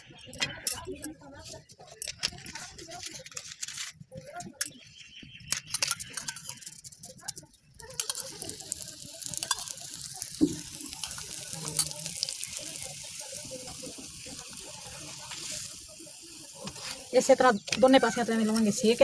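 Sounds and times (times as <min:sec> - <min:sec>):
oil sizzling and crackling: 0:05.5 - 0:19.0.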